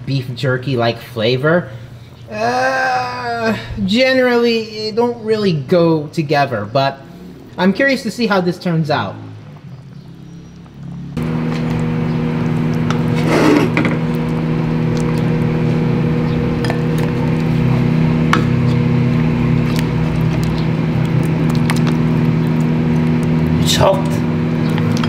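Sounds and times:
steady machine hum: 11.0s - 25.0s.

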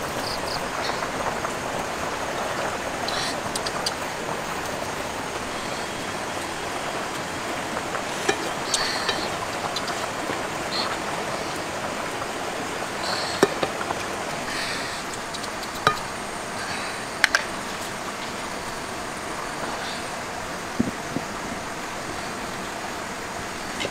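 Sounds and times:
food sizzling in a pan: 0.0s - 20.7s
sharp clicks: 15.0s - 16.1s.

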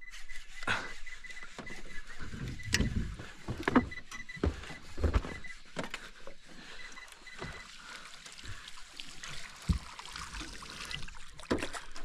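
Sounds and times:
knocks and bumps in a boat: 1.6s - 6.0s
faint water noise: 6.3s - 12.0s.

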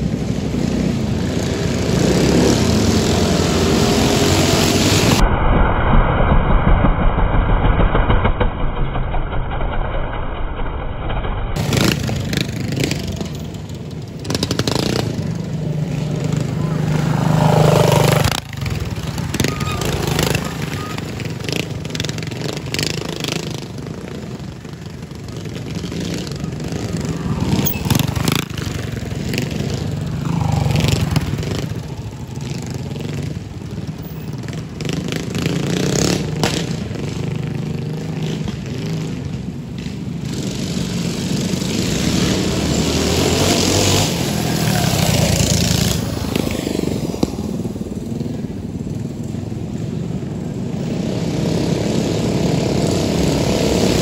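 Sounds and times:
mini bike engines revving: 0.0s - 5.2s, 11.6s - 54.0s.

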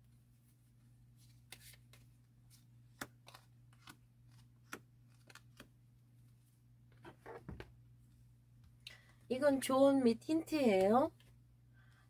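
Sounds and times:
cards flicking and tapping: 1.3s - 5.8s.

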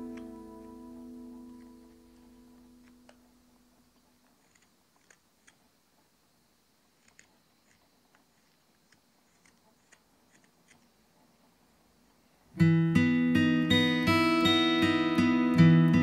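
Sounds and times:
strummed acoustic guitar music: 0.0s - 3.1s, 12.6s - 16.0s
knife carving wood clicks: 4.2s - 5.6s, 7.0s - 10.9s.

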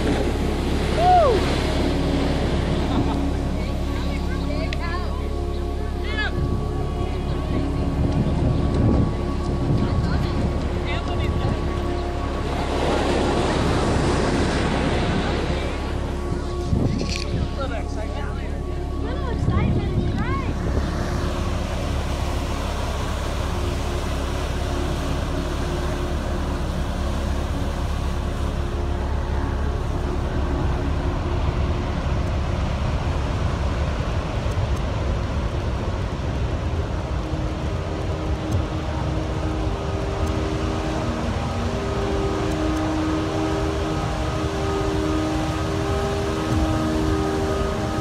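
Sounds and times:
surf crashing over rocks: 0.0s - 4.1s
wind buffeting microphone: 0.0s - 48.0s.

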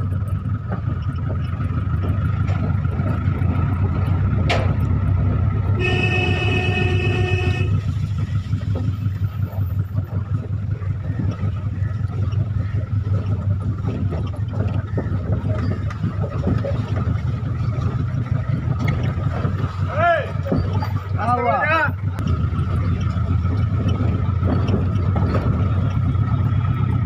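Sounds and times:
car engine and road noise: 0.0s - 27.0s
vehicle horn: 5.7s - 8.0s.

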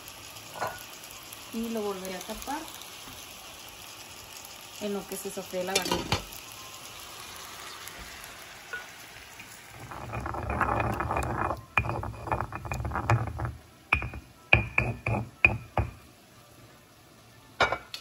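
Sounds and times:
faint steady hiss: 0.0s - 18.0s
stone pestle grinding spices: 9.8s - 15.6s.

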